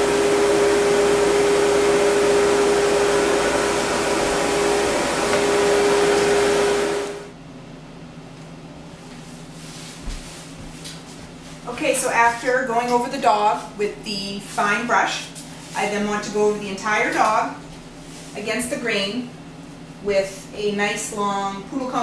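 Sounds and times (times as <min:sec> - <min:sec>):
dog grooming dryer blowing air: 0:00.0 - 0:07.3.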